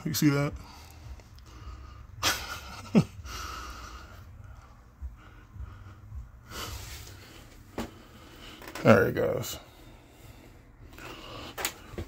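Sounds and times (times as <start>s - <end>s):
heavy breathing close to microphone: 0.5s - 2.2s, 3.1s - 8.8s, 9.6s - 12.0s
low rumble: 0.6s - 8.4s.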